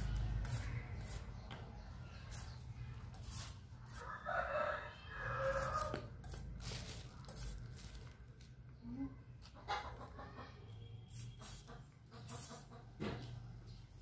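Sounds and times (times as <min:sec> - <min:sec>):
blade scraping a root: 0:02.2 - 0:07.7
rooster crowing: 0:03.9 - 0:06.0.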